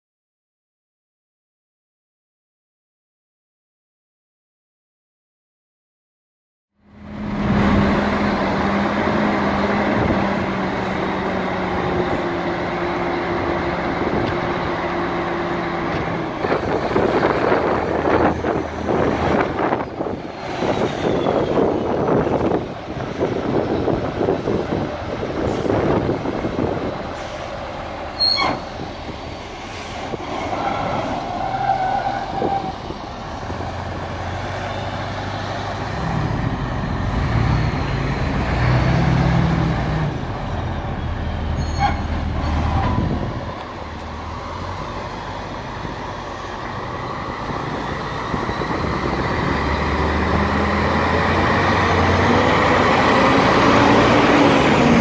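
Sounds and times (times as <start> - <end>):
crane diesel engine running: 6.8 - 31.5, 32.4 - 55.0.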